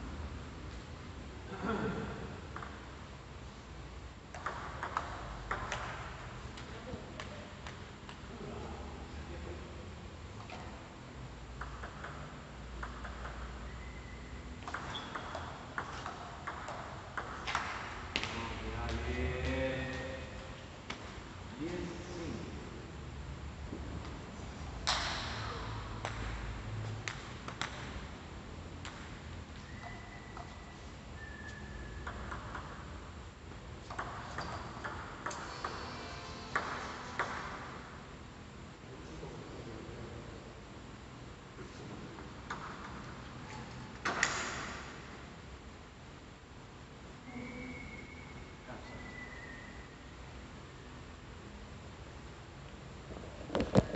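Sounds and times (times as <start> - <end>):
table tennis ball clicking: 14.6 - 17.8.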